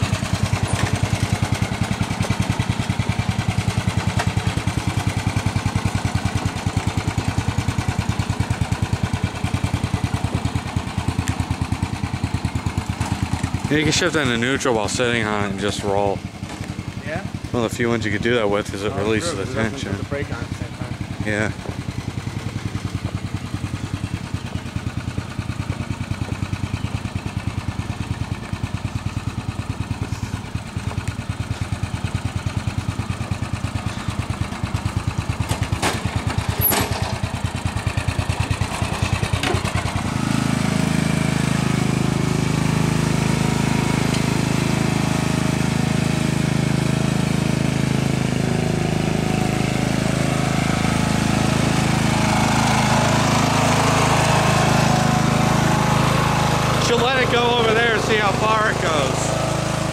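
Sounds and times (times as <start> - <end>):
riding mower engine running: 0.0 - 59.9.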